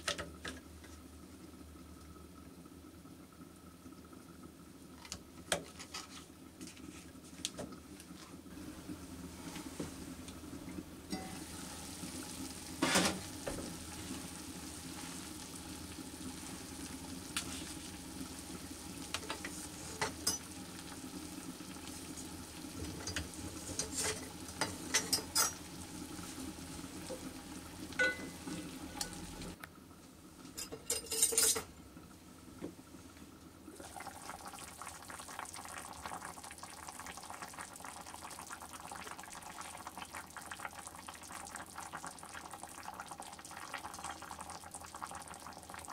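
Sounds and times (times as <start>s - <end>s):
food sizzling in a pot: 11.0s - 29.6s, 33.7s - 45.9s.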